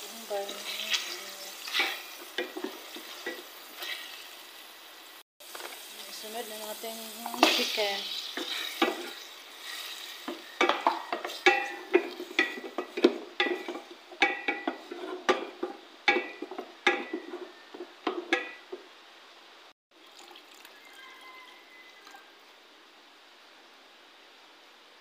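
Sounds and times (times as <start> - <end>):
chicken frying sizzle: 0.0 - 19.0, 19.6 - 22.4
faint steady hiss: 0.0 - 25.0
wooden spoon knocking against pot: 10.3 - 18.8.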